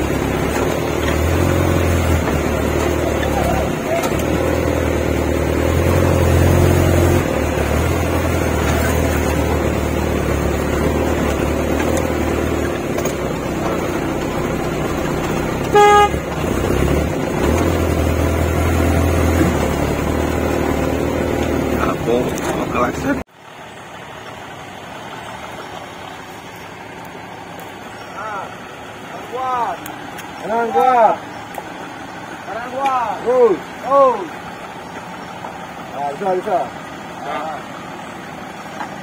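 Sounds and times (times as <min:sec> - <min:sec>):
engine rumbling from inside cab: 0:00.0 - 0:39.0
vehicle horn toot: 0:15.6 - 0:16.3.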